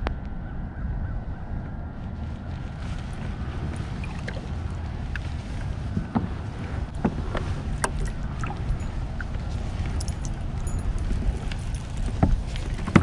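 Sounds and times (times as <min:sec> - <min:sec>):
wind rumble on microphone: 0:00.0 - 0:13.0
water lapping at kayak hull: 0:02.8 - 0:13.0.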